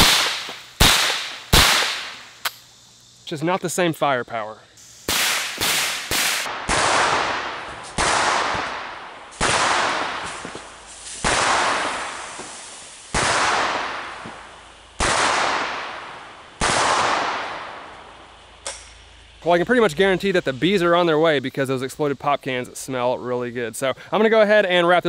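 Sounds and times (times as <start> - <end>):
rifle shots: 0.0 - 2.6, 5.0 - 10.5, 11.2 - 12.3, 13.1 - 14.4, 15.0 - 18.0.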